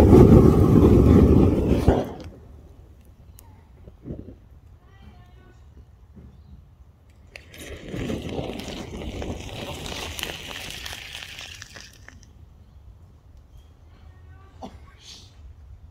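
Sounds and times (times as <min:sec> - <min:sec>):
battery venting hiss with crackles: 0:07.2 - 0:12.3.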